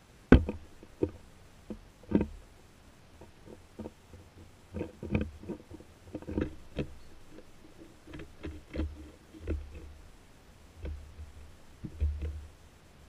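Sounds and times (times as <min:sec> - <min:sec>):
light knocks and taps: 0:00.3 - 0:02.4, 0:10.8 - 0:12.5.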